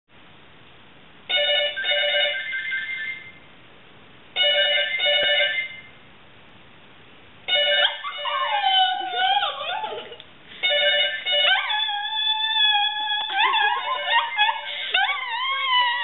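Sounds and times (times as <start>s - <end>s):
phones ringing electronically: 1.3s - 3.1s, 4.4s - 5.9s, 7.5s - 8.7s, 10.6s - 11.8s.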